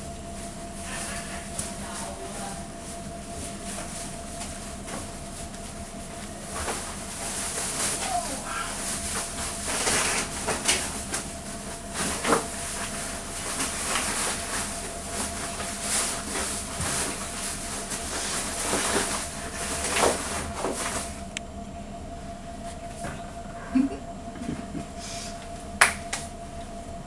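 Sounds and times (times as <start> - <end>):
faint steady hum: 0.0 - 27.0.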